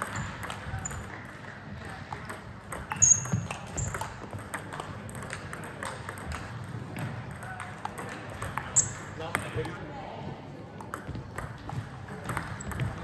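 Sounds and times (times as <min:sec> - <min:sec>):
ping pong ball clicking: 0:00.0 - 0:09.8, 0:10.8 - 0:13.0
short high squeak: 0:03.0 - 0:03.4.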